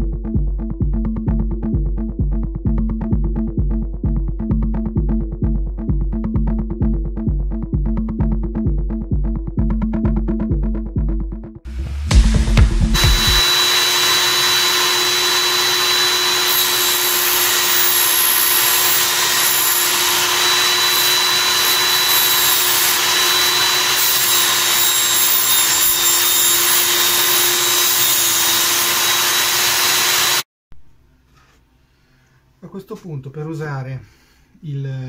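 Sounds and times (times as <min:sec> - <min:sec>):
power saw cutting metal: 0:12.9 - 0:30.5.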